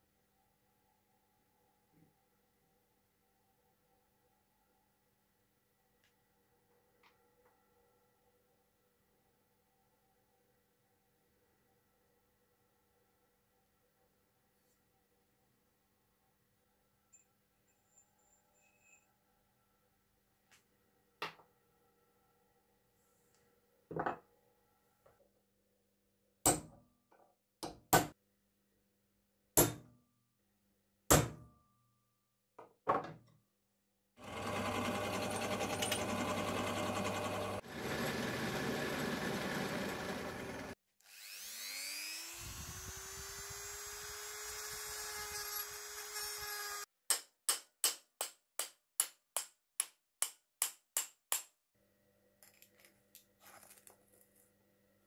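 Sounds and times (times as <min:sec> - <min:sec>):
motor whine: 0:34.2 - 0:44.5
drill press boring into wood: 0:34.2 - 0:46.8.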